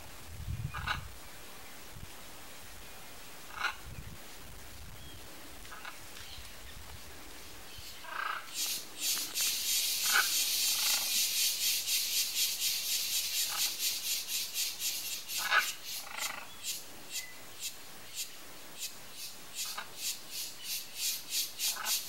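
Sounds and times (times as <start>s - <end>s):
pulsing high-pitched insect buzz: 8.4s - 22.0s.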